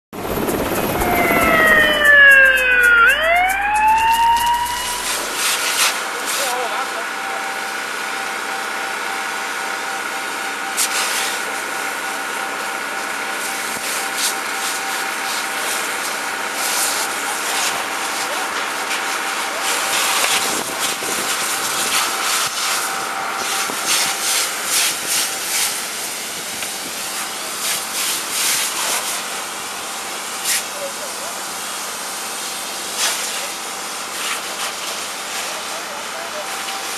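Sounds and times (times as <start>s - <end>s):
fire crackling: 0.2s - 6.6s
emergency siren wailing: 0.2s - 24.6s
hose spray hissing: 3.8s - 6.7s.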